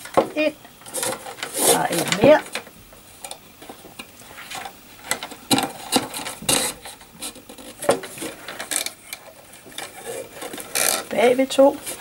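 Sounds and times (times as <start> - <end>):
cane stakes scraping and clicking: 0.8 - 2.6, 4.4 - 12.0.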